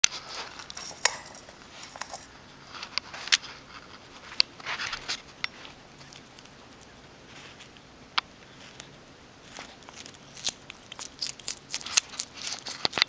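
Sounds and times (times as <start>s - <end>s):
skunk crunching carrot: 0.0s - 13.0s
clinks against metal bowl: 0.7s - 2.3s.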